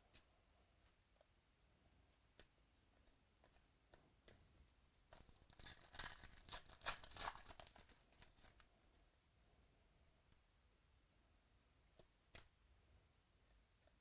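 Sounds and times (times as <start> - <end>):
foil wrapper tearing and crinkling: 5.2 - 8.6.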